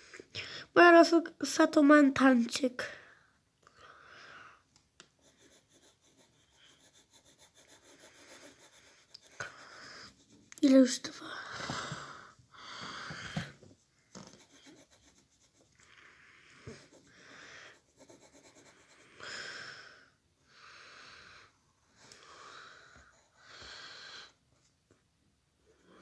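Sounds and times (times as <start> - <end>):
person breathing faintly: 2.8 - 4.7, 7.8 - 10.4, 11.1 - 14.0, 15.8 - 18.0, 18.6 - 24.5.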